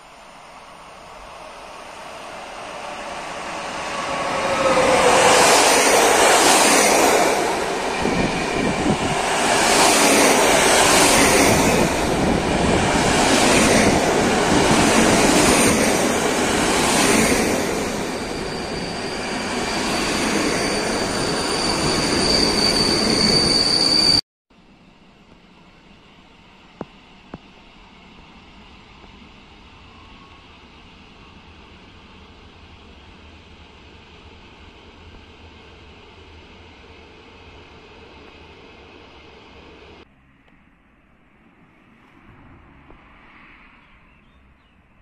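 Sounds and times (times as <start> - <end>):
train rail rumble: 0.0 - 24.1
high brake squeal: 17.8 - 24.2.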